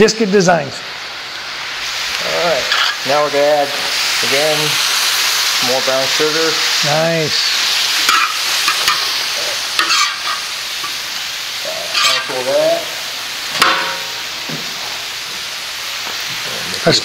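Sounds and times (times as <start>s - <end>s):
food sizzling on hot steel: 0.0s - 17.0s
metal spatula scraping and clinking: 2.7s - 3.0s, 8.1s - 9.1s, 9.8s - 11.0s, 11.9s - 12.4s.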